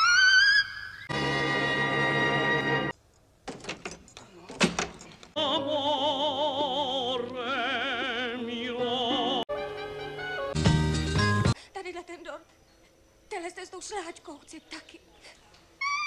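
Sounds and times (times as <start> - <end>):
brass music: 1.1 - 2.9, 9.5 - 11.5
high operatic voice singing: 5.4 - 9.5.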